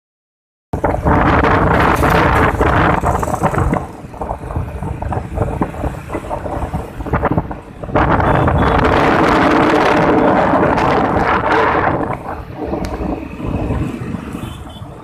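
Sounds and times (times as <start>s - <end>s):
wind on microphone: 0.8s - 15.0s.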